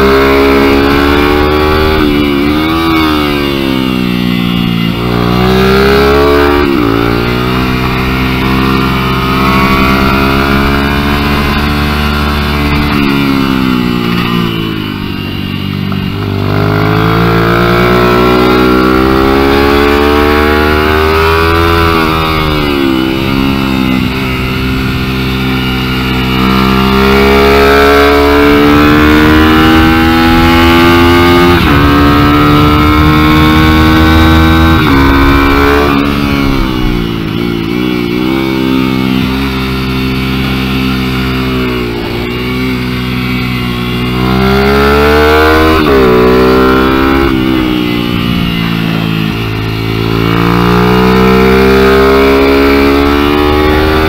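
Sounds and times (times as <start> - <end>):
small motorbike engine revving: 0.0 - 54.0.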